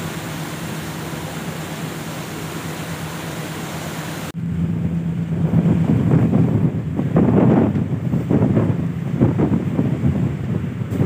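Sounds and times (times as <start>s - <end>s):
rushing hiss of ship's wake: 0.0s - 4.4s
low steady ship hum: 0.0s - 11.0s
wind buffeting microphone: 4.3s - 11.0s.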